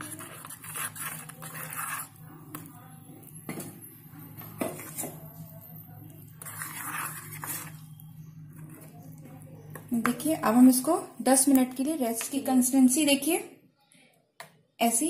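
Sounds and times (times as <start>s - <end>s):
metal spoon scraping bowl: 0.0s - 2.7s, 4.2s - 10.8s.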